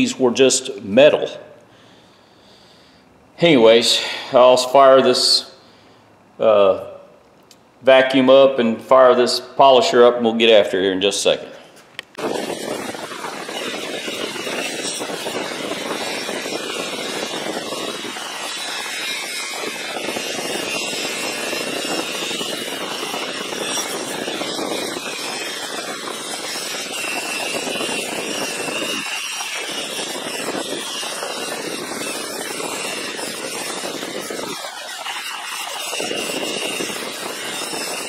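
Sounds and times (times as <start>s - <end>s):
shop vacuum running: 11.4s - 38.0s
metal rubbing on buffing wheel: 11.7s - 38.0s
electric polisher running: 12.2s - 38.0s.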